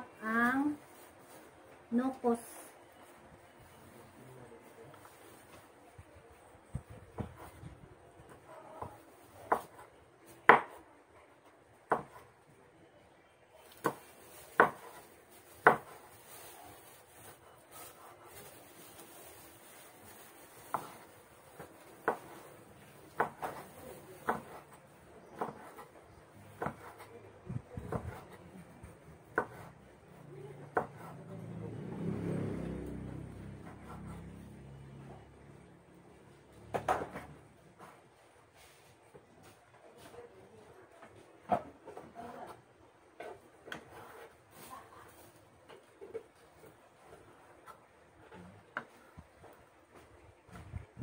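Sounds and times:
knife chopping on wooden board: 8.8 - 10.8, 11.9 - 12.2, 13.8 - 15.0, 15.6 - 16.0, 21.6 - 22.5, 23.1 - 24.7, 25.3 - 25.9, 26.5 - 27.1, 29.3 - 29.7.

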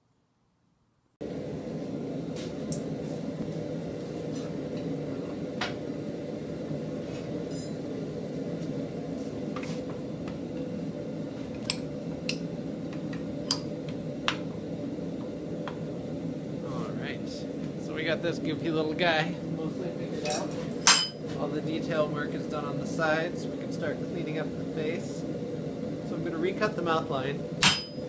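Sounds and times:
metal tongs clinking on vise: 20.3 - 21.2.

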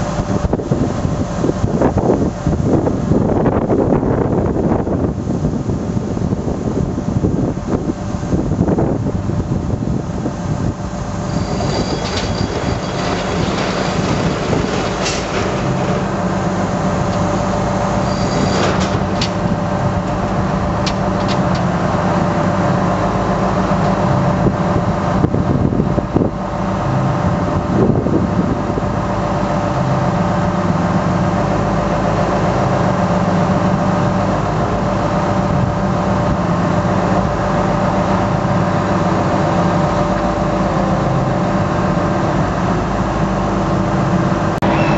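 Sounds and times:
diesel engine running: 0.0 - 44.9
high squeaks: 11.2 - 19.4, 44.6 - 44.9.

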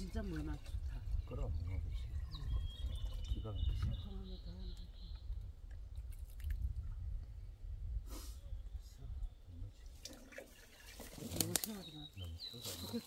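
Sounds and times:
water drips and splashes: 0.0 - 4.2, 5.6 - 6.9, 9.8 - 11.9.

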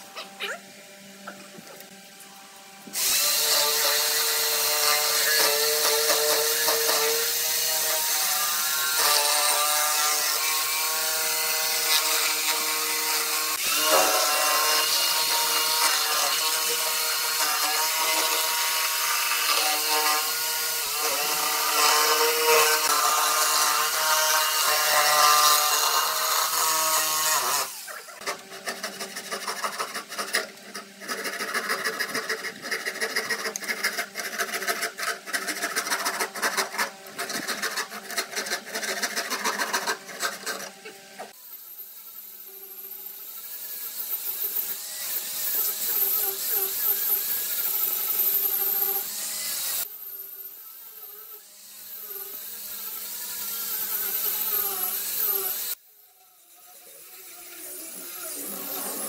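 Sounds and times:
electric jigsaw cutting wood: 2.8 - 59.0
hand file scraping wood: 21.0 - 41.4, 57.9 - 59.0.

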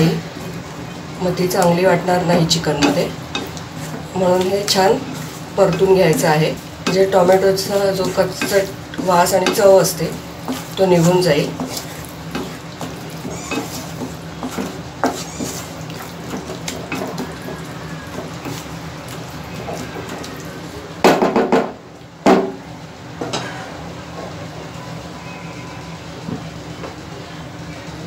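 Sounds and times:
spatula scraping sizzling sauce: 0.0 - 20.7
knocks on pan: 21.0 - 22.6.

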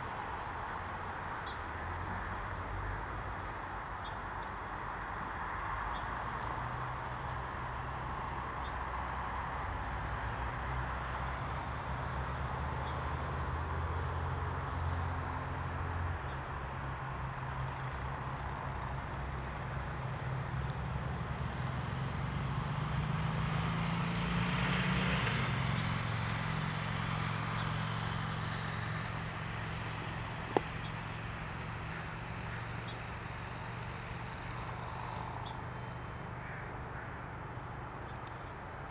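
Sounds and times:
distant road traffic rumble: 0.0 - 38.9
vehicle passing: 19.8 - 38.9.

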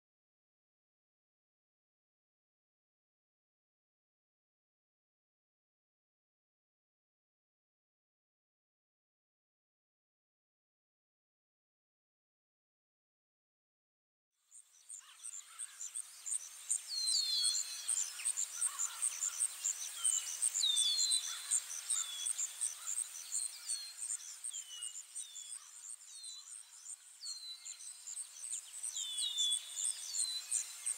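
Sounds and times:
crickets chirping: 14.7 - 30.9.

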